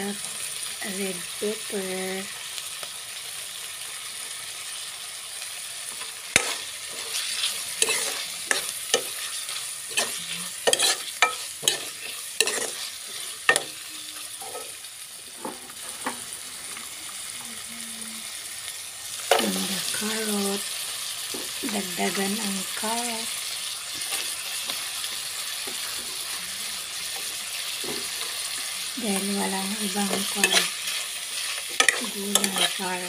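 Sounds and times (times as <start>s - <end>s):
meat sizzling in a wok: 0.0s - 33.0s
metal spoon scraping a pan: 6.0s - 14.9s, 29.1s - 33.0s.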